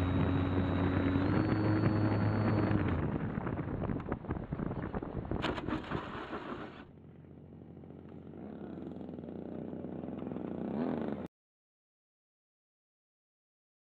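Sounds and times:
model airplane motor droning: 0.0s - 3.3s
wind rushing over microphone: 1.3s - 6.4s.

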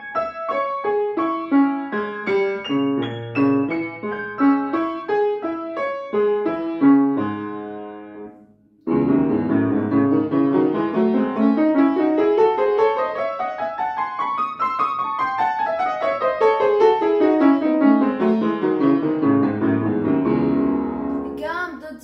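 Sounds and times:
piano playing scales: 0.0s - 22.0s.

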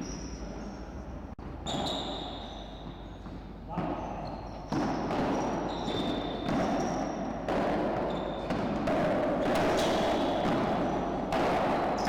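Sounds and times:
paddles striking ball: 4.7s - 12.0s.

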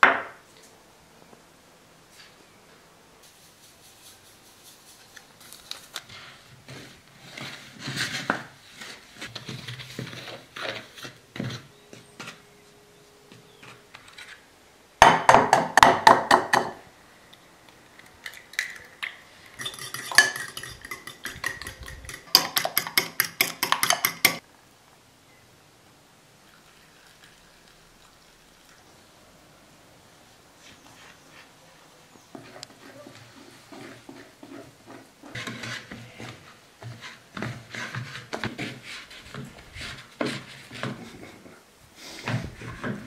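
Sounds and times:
utensils clinking against bowls: 19.5s - 24.4s.

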